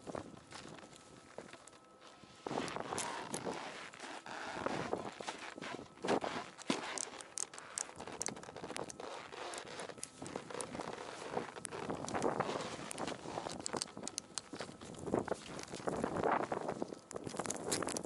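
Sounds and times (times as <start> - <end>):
jacket fabric and snow rustling: 2.2 - 7.2, 7.9 - 13.6
ratchet strap clicks: 6.3 - 16.0.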